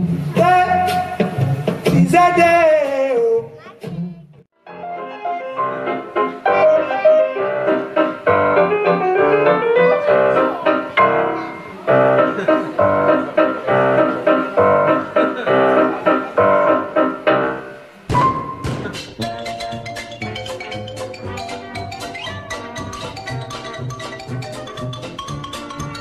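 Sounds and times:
fast piano music: 0:04.7 - 0:18.6, 0:19.2 - 0:26.0.

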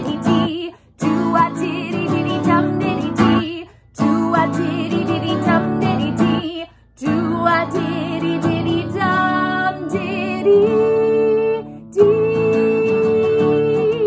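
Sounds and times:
strummed acoustic guitar: 0:00.0 - 0:14.0
woman singing with vibrato: 0:00.0 - 0:14.0.

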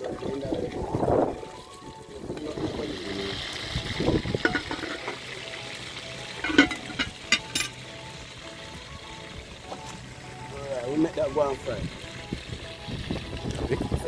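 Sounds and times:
metal clinks and knocks: 0:04.4 - 0:05.2, 0:06.4 - 0:07.8
spoon stirring sloshing liquid: 0:04.4 - 0:05.2.

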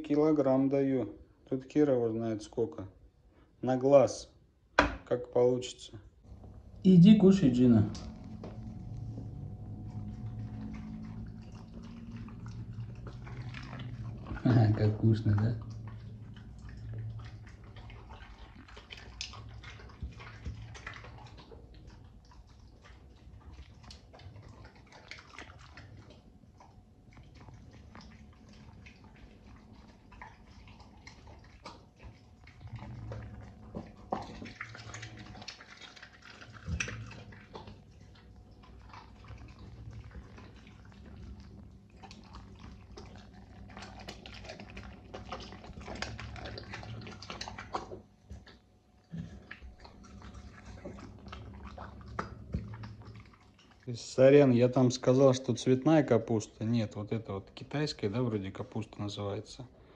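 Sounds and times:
dog chewing and slurping food: 0:06.2 - 0:59.1.

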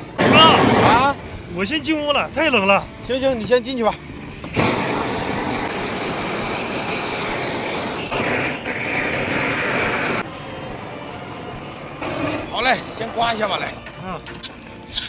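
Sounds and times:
gas torch flame hissing: 0:00.0 - 0:15.0.

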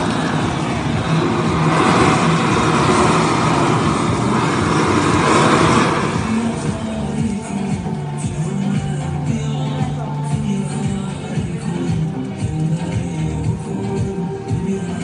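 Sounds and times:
blowtorch jet-flame hiss: 0:00.0 - 0:07.0.

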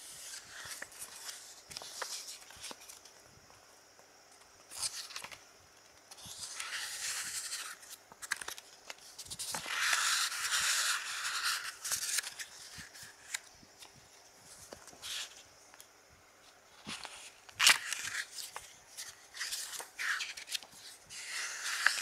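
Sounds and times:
paper pages turning: 0:00.0 - 0:03.1, 0:04.7 - 0:05.4, 0:06.1 - 0:13.5, 0:16.8 - 0:22.0.

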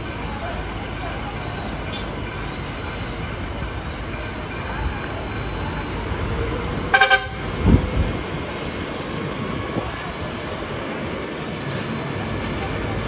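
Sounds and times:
street and engine noise: 0:00.0 - 0:13.0
vehicle horn toots: 0:06.9 - 0:07.4.

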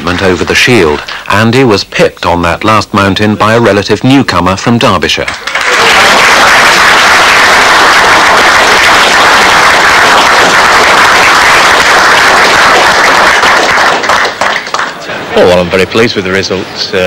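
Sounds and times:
audience applauding: 0:00.0 - 0:01.4, 0:05.3 - 0:15.0.

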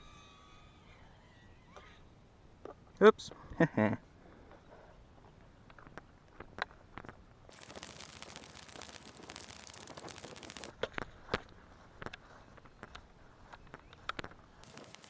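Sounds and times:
footsteps through grass: 0:07.5 - 0:15.0.

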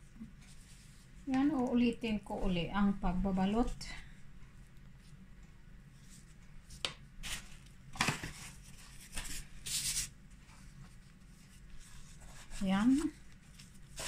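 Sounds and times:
plastic gloves rustling: 0:05.9 - 0:14.0.

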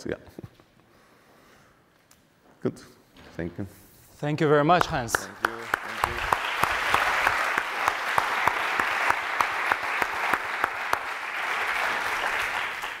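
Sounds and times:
audience applauding: 0:04.7 - 0:13.0.

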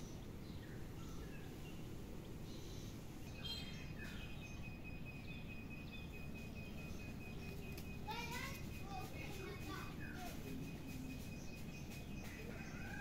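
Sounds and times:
outdoor background noise: 0:00.0 - 0:13.0
high bird chirps: 0:02.5 - 0:12.9
thin steady high tone: 0:02.6 - 0:12.6.

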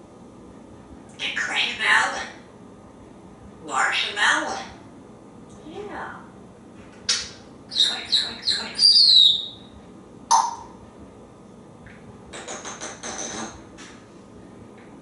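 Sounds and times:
parrot chirps and whistles: 0:07.1 - 0:09.7, 0:10.3 - 0:10.8
parrot clicking chatter: 0:12.3 - 0:13.4.

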